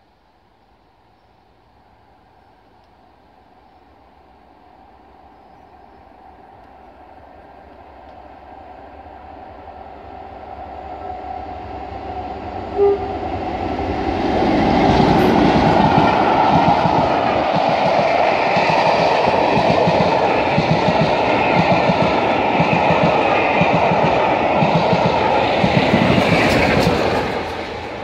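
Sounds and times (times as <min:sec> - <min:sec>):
diesel locomotive engine: 0:00.4 - 0:28.0
train coaches rumbling on rails: 0:01.7 - 0:28.0
train horn toot: 0:12.4 - 0:13.5.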